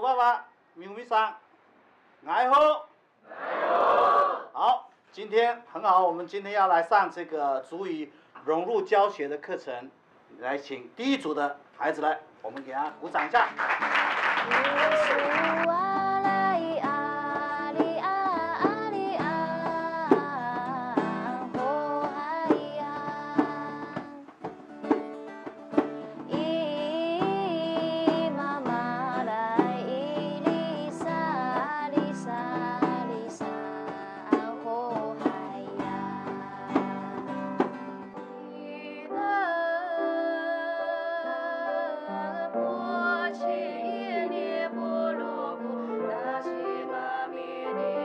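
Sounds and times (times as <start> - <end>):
acoustic guitar: 12.9 - 40.7
voices singing: 14.4 - 24.3, 38.4 - 48.0
hand drum beating: 15.7 - 33.2.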